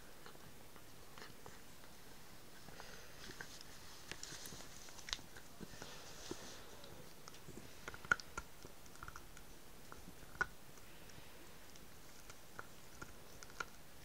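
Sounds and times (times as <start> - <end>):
dog teeth clicking on chew: 7.0 - 14.0.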